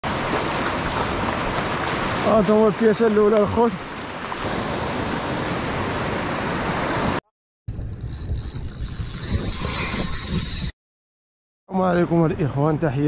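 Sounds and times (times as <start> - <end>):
surf washing over sandy beach: 0.0 - 7.2.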